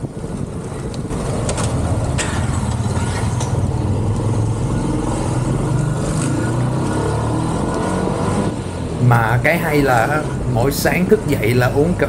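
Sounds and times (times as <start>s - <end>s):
small motorbike engine running: 0.0s - 8.9s.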